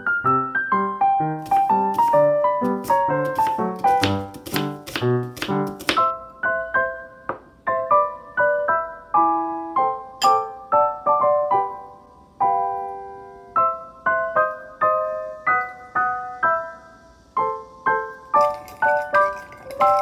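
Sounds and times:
light piano melody: 0.0 - 20.0.

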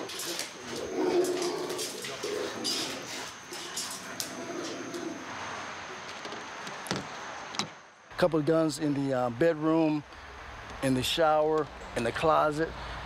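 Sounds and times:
wire kennel panels rattling: 0.0 - 5.2
dogs whining: 0.0 - 5.3.

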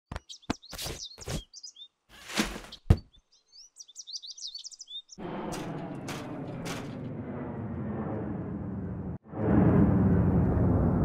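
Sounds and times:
birds chirping: 0.1 - 5.8
knocks and thuds: 2.4 - 3.1.

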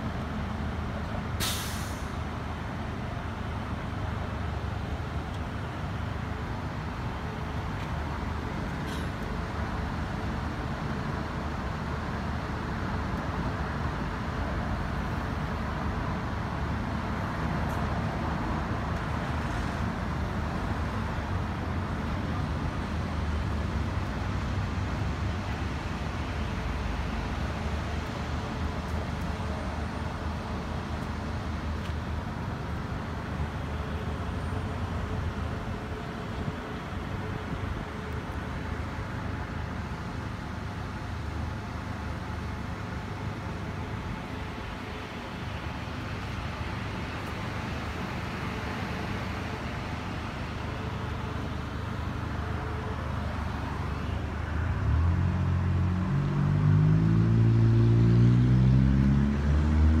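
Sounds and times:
road traffic rumble: 0.0 - 60.0.

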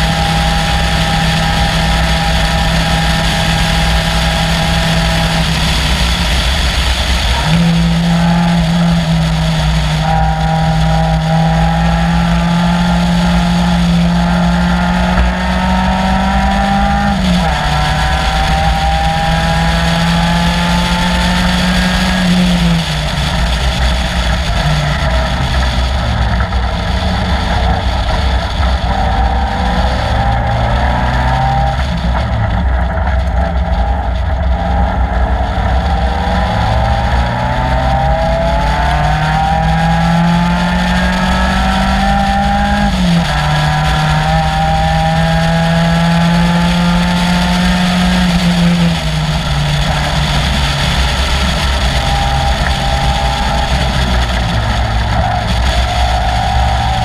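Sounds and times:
racing car engine revving: 0.0 - 57.0.

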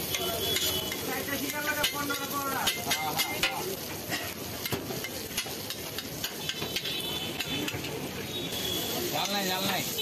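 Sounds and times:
chicken sizzling: 0.0 - 10.0
metal spatula scraping on griddle: 0.0 - 10.0.

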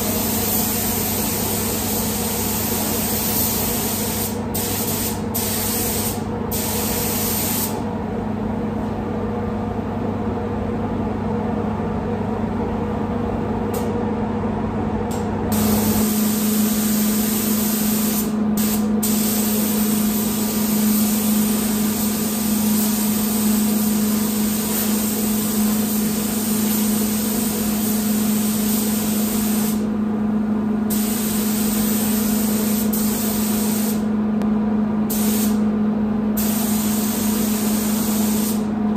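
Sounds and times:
spray gun hissing: 0.0 - 7.8, 15.5 - 29.8, 30.9 - 34.0, 35.1 - 35.6, 36.4 - 38.7
ventilation hum: 0.0 - 38.9.

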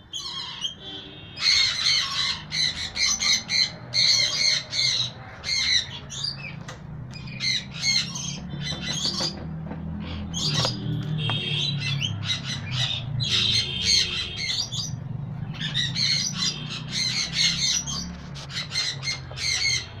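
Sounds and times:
parrot squawking loudly: 1.4 - 6.0.

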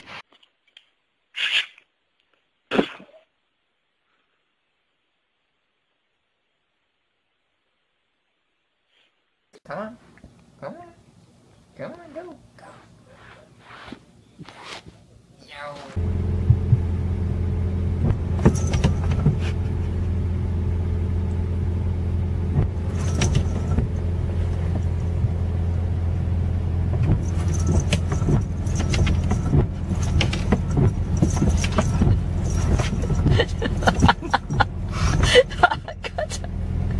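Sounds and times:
car engine idling: 16.0 - 36.9.

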